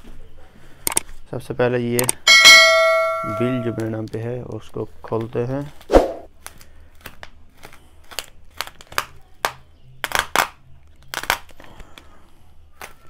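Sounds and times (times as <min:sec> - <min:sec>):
plastic and bubble wrap crinkling: 0:05.6 - 0:12.1.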